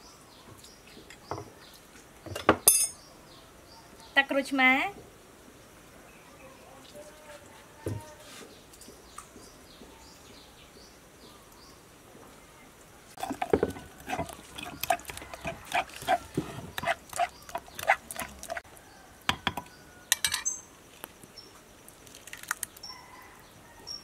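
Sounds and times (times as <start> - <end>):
metal spoon scraping clay mortar: 13.2 - 18.6.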